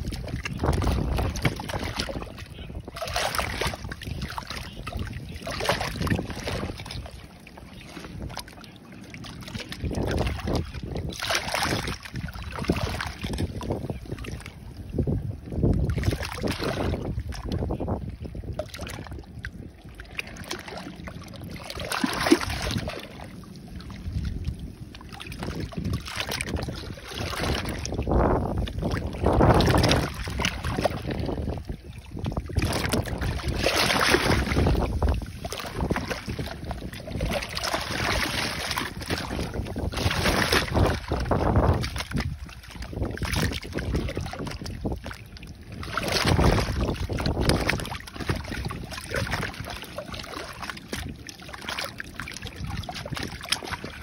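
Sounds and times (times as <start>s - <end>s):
seawater rushing through a crack: 32.6s - 42.4s.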